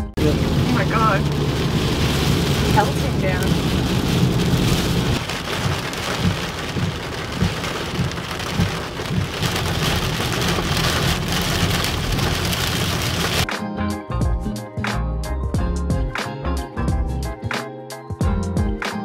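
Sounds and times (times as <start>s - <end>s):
heavy rain on car roof: 0.1s - 13.4s.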